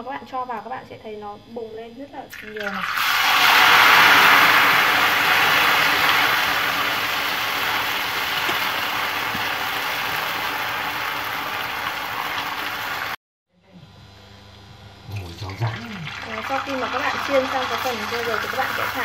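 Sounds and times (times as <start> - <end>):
hot oil sizzling: 2.3 - 13.2, 15.2 - 19.0.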